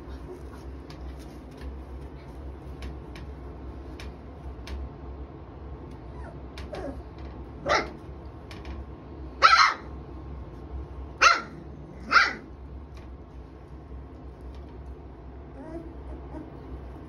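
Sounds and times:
puppies yapping: 9.4 - 9.9.

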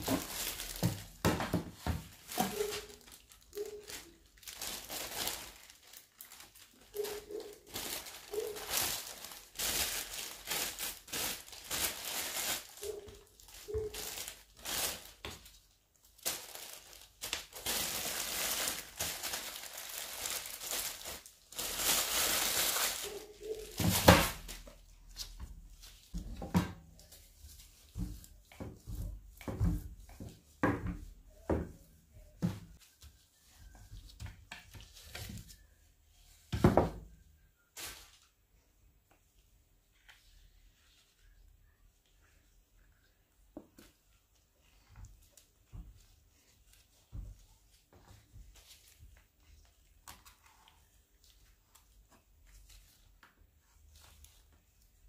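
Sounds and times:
cling film crinkling: 2.1 - 24.7.

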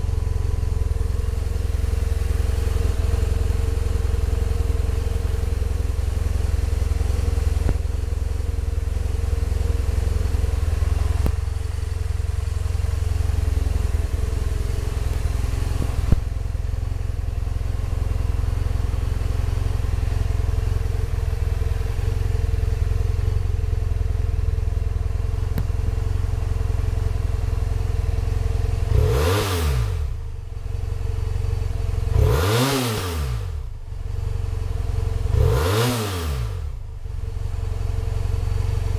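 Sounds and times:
motorcycle engine idling: 0.0 - 38.9
engine revving: 28.8 - 30.2, 32.0 - 33.7, 35.2 - 36.8.

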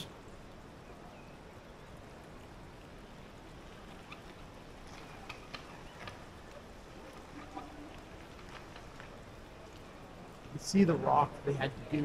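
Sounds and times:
steady background hiss: 0.0 - 12.0.

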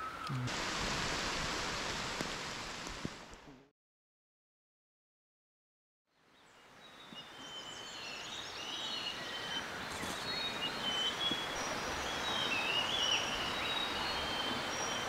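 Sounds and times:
steady background hiss: 0.0 - 3.6, 6.2 - 15.0
birds singing: 6.4 - 15.0.

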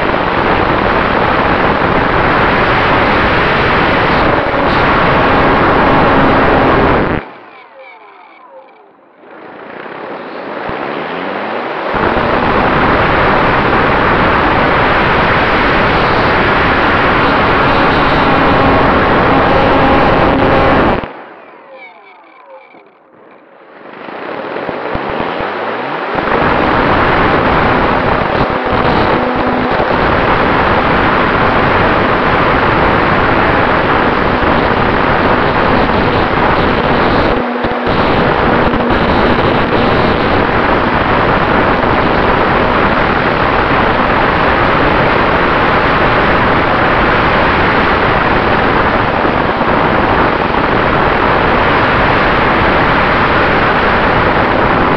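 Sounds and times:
wind rushing: 23.8 - 54.9.

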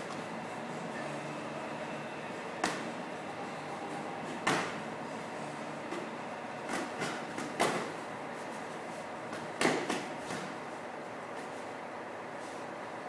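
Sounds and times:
steady background noise: 0.0 - 13.0
kicks and punches smacking pads: 4.4 - 4.8, 6.7 - 8.0, 9.3 - 10.6.

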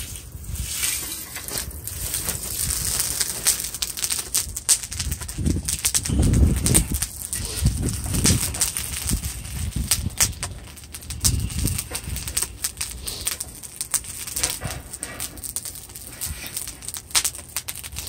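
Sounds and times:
burning charcoal clinking and crackling: 0.0 - 18.0.

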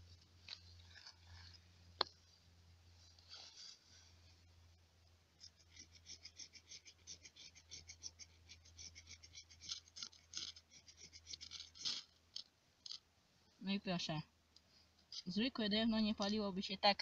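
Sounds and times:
fire steel scraping: 3.0 - 4.4.

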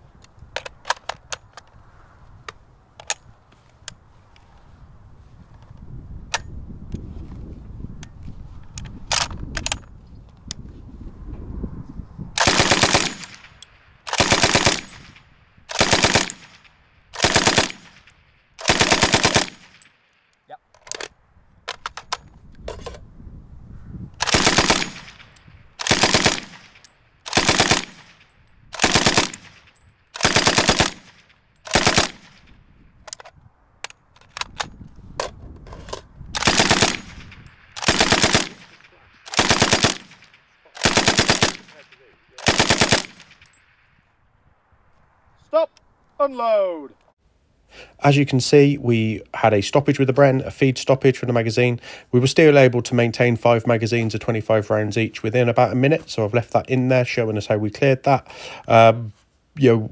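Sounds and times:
machine gun firing bursts: 12.4 - 13.3, 14.1 - 15.0, 15.7 - 16.6, 17.2 - 18.0, 18.6 - 19.8, 24.2 - 25.2, 25.8 - 28.2, 28.8 - 29.5, 30.2 - 32.4, 36.4 - 41.8, 42.4 - 43.3.

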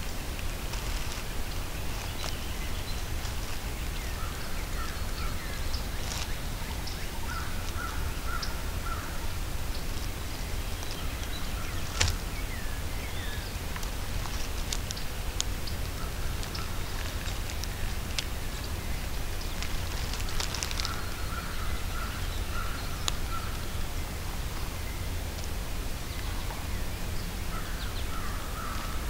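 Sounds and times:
steady low rumble: 0.0 - 29.0
wild birds calling: 0.0 - 29.0
faint ticks: 13.4 - 23.7.

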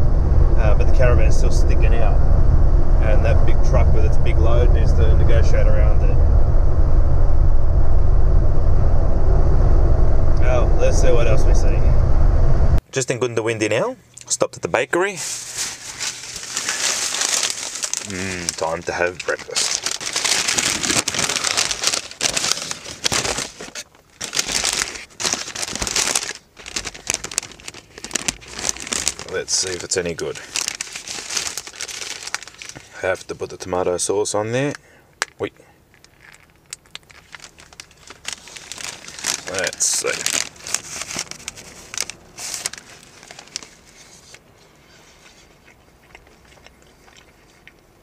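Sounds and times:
paper bag crinkling: 15.2 - 33.2, 36.0 - 44.4
flaky pastry crunching: 15.7 - 29.4, 30.3 - 33.0, 36.0 - 43.9, 45.2 - 48.0
quiet chewing with clicks: 45.4 - 48.0.

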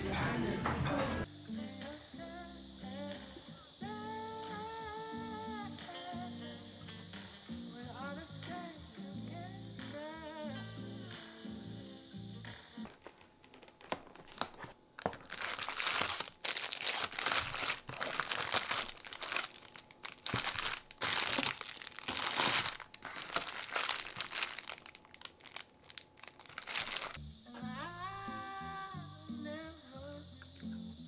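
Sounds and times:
plastic wrappers crinkling: 12.9 - 27.2.

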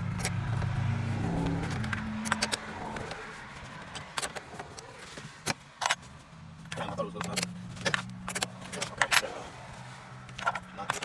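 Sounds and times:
low hum: 0.0 - 4.2.

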